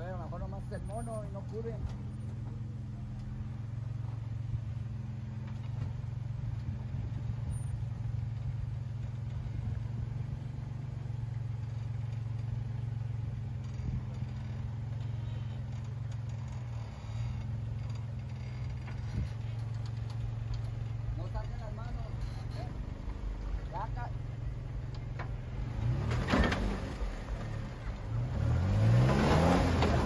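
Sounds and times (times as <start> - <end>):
vehicle engine running at low revs: 0.0 - 30.0.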